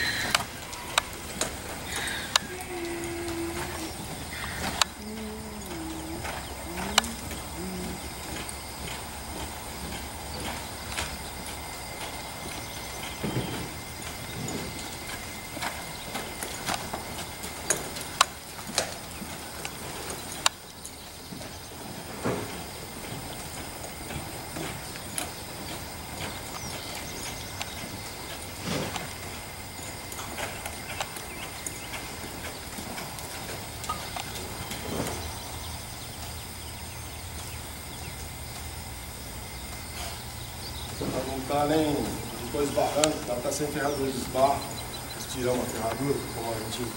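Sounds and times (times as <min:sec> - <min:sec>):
sharp uneven clicks: 0:00.0 - 0:35.5
horse hoofbeats on dirt: 0:00.0 - 0:46.9.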